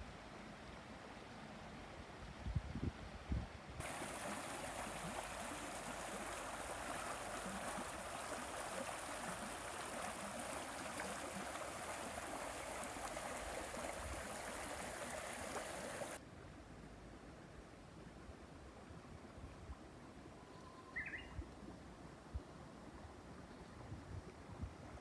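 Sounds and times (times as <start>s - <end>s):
creek babbling over stones: 3.8s - 16.2s.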